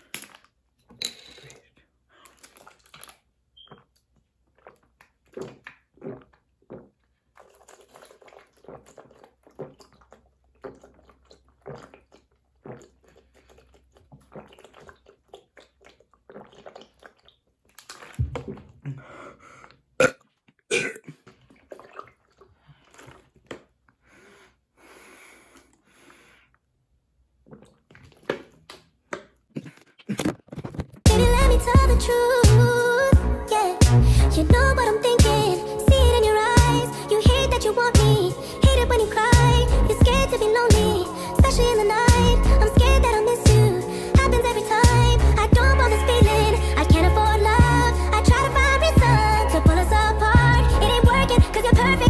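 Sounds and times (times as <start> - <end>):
person gulping water: 1.3 - 24.2, 27.2 - 52.0
person burping: 20.0 - 21.3, 29.5 - 30.6.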